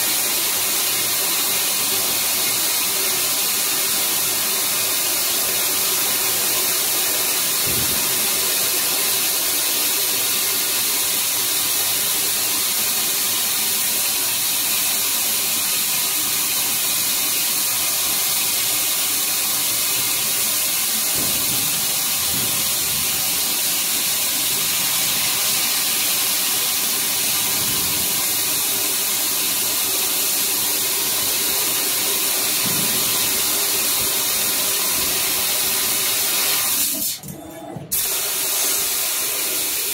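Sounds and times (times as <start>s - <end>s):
loud hiss of gas jet: 0.0s - 37.2s, 37.9s - 39.9s.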